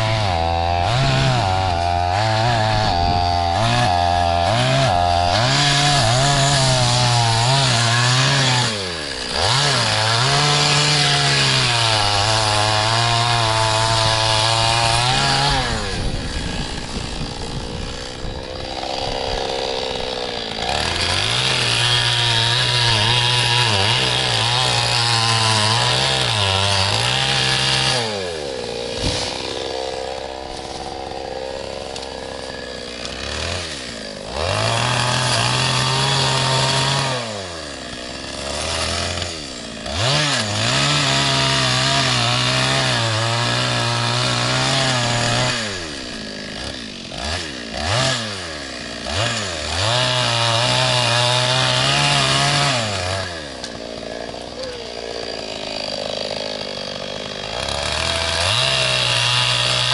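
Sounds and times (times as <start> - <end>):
chainsaw cutting wood: 0.0 - 59.9.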